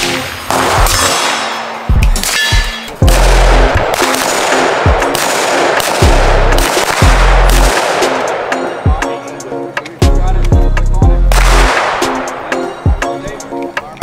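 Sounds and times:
music with heavy bass: 0.0s - 14.0s
handgun shots: 0.5s - 8.4s.

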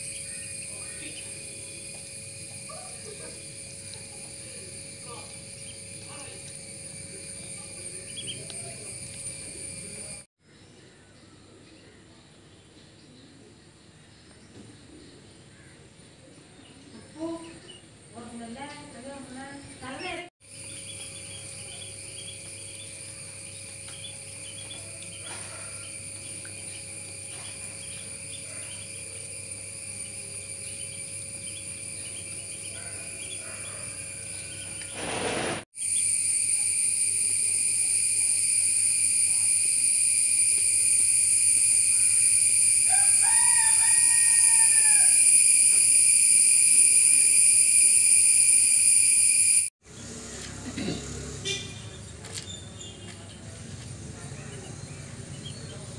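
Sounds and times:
bird calling: 0.0s - 1.8s
high-pitched insect chorus: 0.0s - 10.3s, 17.1s - 49.7s.

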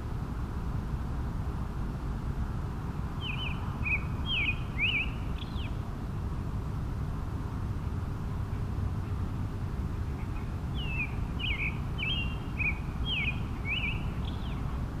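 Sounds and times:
vehicle road noise rumble: 0.0s - 15.0s
songbird singing: 3.0s - 6.2s, 7.0s - 15.0s.

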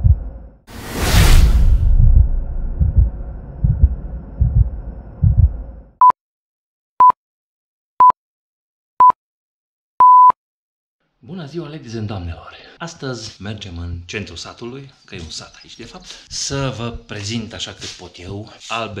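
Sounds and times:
deep pulsing thumps: 0.0s - 0.3s, 1.1s - 5.9s
short electronic beeps: 10.0s - 10.4s.

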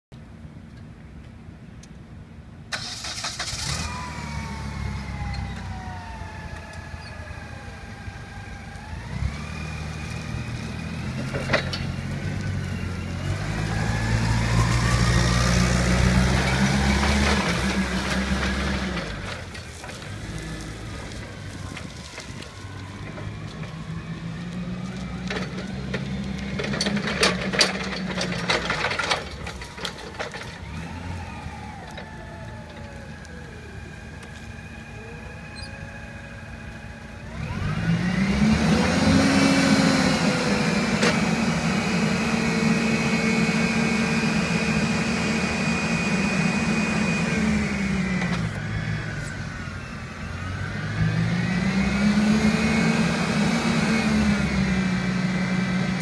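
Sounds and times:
forklift engine revving: 2.7s - 56.0s
rattling clanks: 25.4s - 30.6s.

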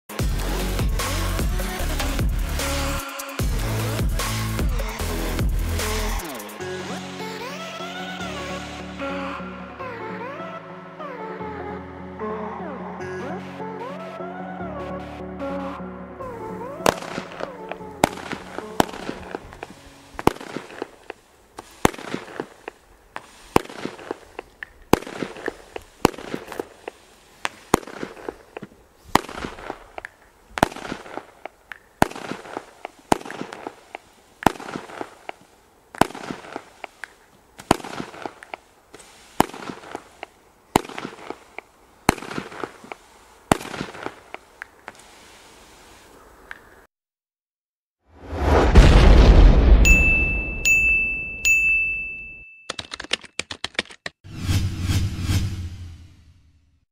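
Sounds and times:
firework fizzing hiss: 16.7s - 46.4s
firework bangs: 16.8s - 45.6s, 48.4s - 50.6s.

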